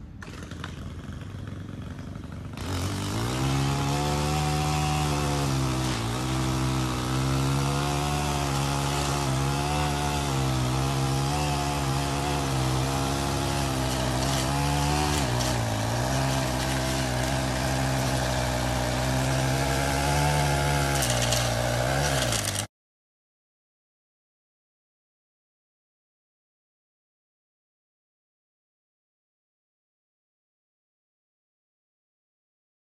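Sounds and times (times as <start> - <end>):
small gas engine running: 0.0 - 22.7.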